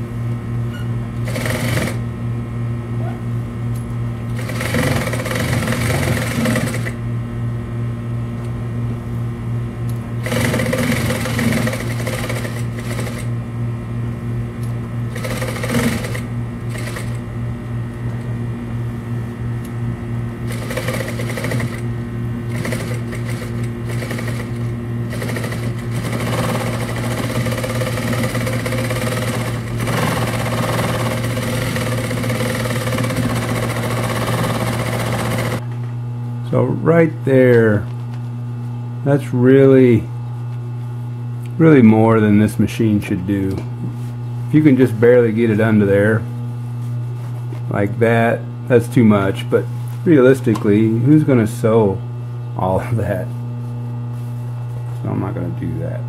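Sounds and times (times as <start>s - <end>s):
motor hum: 0.0s - 56.0s
sewing machine stitching: 1.2s - 2.0s, 4.4s - 7.0s, 10.2s - 13.3s, 15.1s - 17.2s, 20.5s - 21.8s, 22.5s - 35.6s.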